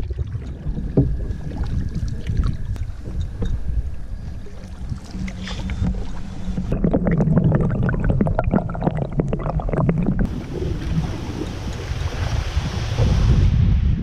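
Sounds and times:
water washing: 0:00.0 - 0:13.5
wind: 0:00.0 - 0:14.0.

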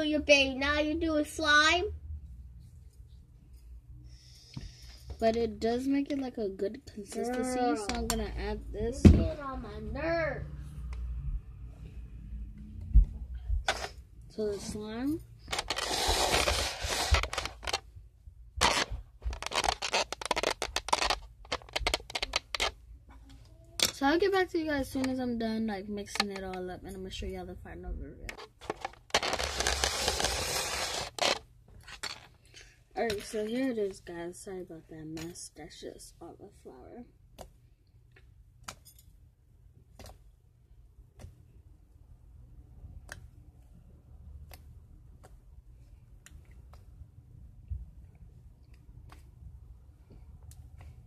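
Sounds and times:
scraping and rustling by hand: 0:15.5 - 0:17.8, 0:28.3 - 0:32.3.

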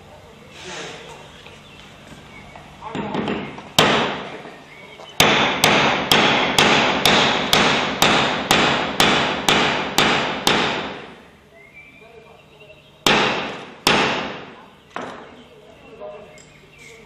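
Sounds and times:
sharp knocks in reverberant hall: 0:02.9 - 0:04.4, 0:05.2 - 0:11.1, 0:13.0 - 0:15.3.

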